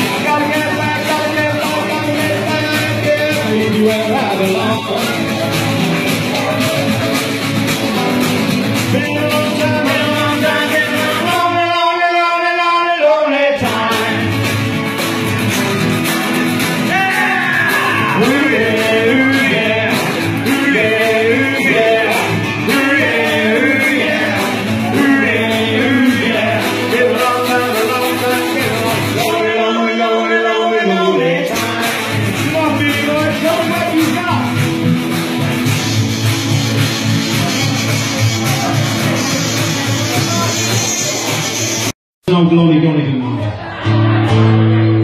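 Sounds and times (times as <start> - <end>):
lead singer singing: 0.0 - 7.1, 8.8 - 14.4, 16.9 - 34.2
live rock band playing: 0.0 - 11.8, 13.6 - 29.9, 30.9 - 41.9.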